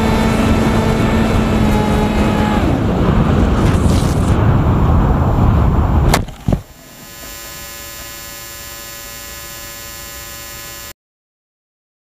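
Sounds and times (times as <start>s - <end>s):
electrical hum: 6.2s - 11.0s.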